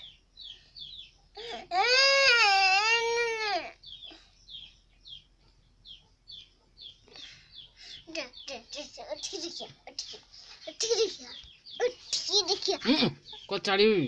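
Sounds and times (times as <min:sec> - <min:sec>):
high bird chirps: 0:00.0 - 0:02.2, 0:02.8 - 0:14.0
infant crying: 0:01.4 - 0:03.8.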